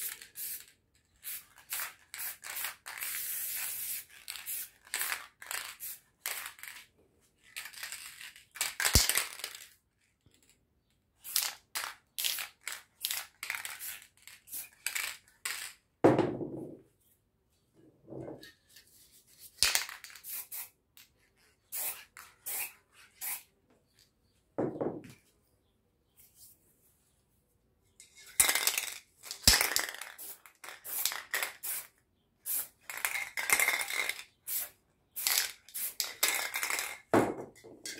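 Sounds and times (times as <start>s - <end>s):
spray can bursts: 0.0s - 6.6s, 19.6s - 20.8s, 21.7s - 23.5s, 28.5s - 37.0s.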